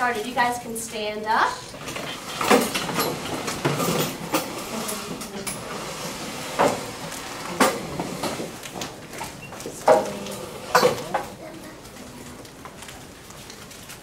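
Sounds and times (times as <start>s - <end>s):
chairs knocking and scraping: 1.7s - 11.9s.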